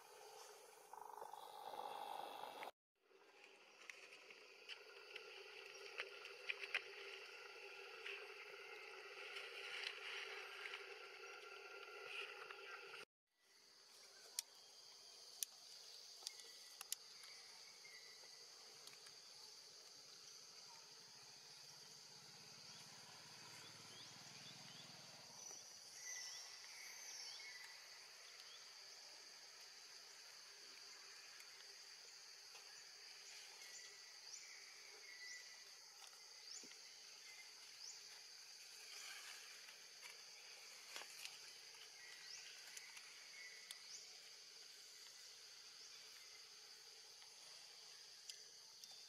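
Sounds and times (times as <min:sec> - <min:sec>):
high-pitched insect chorus: 0:00.0 - 0:02.7, 0:13.5 - 0:49.0
high-pitched insect drone: 0:00.0 - 0:02.7.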